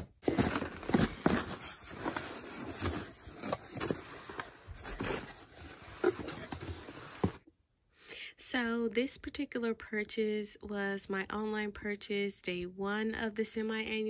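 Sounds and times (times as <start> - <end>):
plastic bags crinkling: 0.0 - 6.6.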